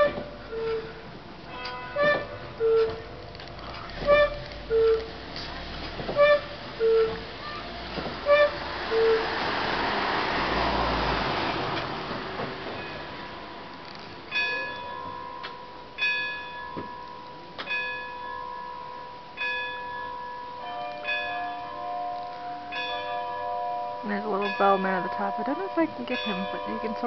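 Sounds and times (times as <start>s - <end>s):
clock bell strikes ringing: 14.3s - 27.0s.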